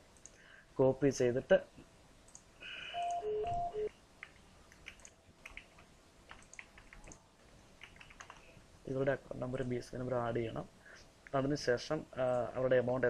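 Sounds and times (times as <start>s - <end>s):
mouse and keyboard clicks: 4.2s - 7.2s, 7.8s - 8.5s.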